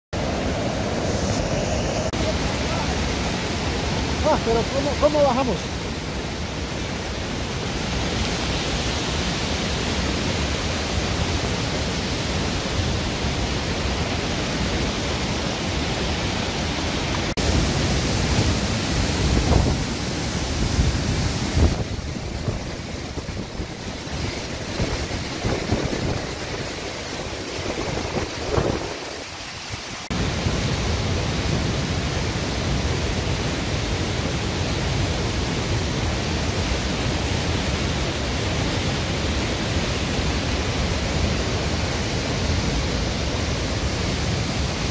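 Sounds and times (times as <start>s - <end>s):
waterfall rushing over rock: 0.2s - 44.9s
wind buffeting microphone: 18.2s - 20.0s, 20.6s - 29.3s.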